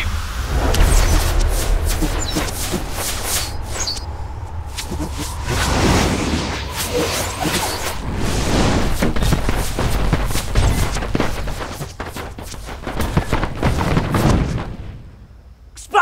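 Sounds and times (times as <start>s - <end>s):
sharp crackling spell impacts: 0.0s - 15.6s.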